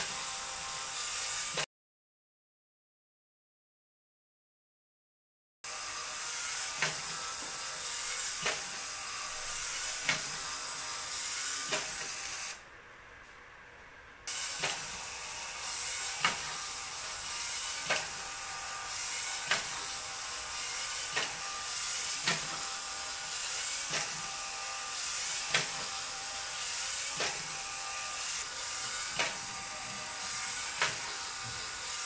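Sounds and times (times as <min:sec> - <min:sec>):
motor whirring: 0:05.7 - 0:12.6, 0:14.3 - 0:32.0.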